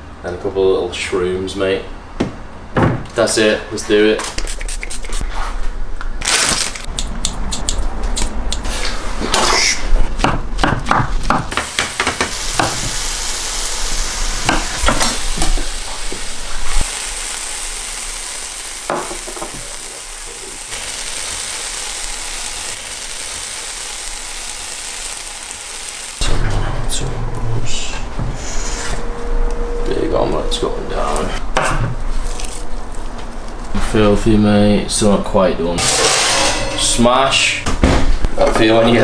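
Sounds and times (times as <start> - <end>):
frying sizzle: 11.5 - 26.3.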